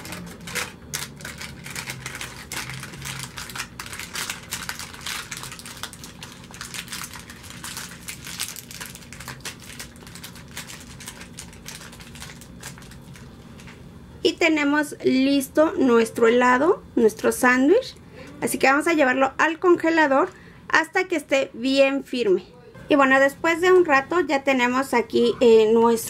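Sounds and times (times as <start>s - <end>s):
foil wrapper crinkling: 0.0s - 13.8s.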